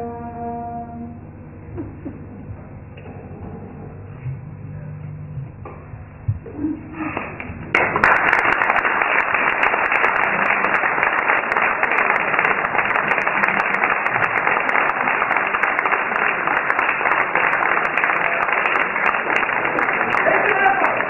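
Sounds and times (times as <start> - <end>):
audience applauding: 7.1 - 21.0.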